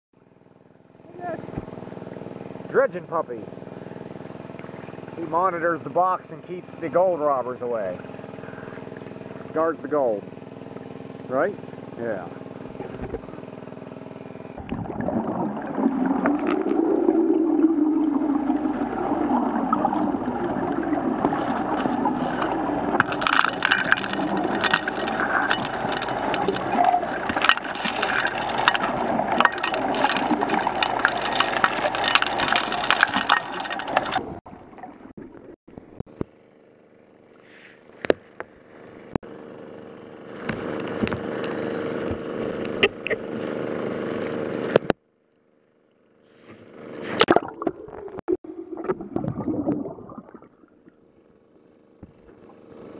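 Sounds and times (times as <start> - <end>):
small engine humming: 0.2 - 14.6, 15.6 - 34.4, 36.3 - 44.9
underwater dredge rush: 14.5 - 36.0, 47.0 - 51.0
stones and gravel rattling: 20.4 - 34.4.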